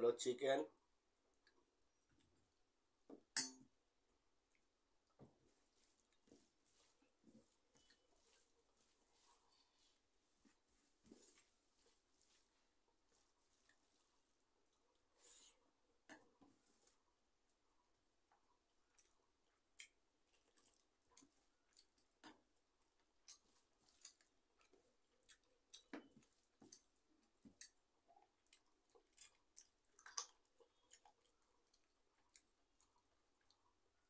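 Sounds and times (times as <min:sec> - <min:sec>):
chewing: 0:18.8 - 0:33.9.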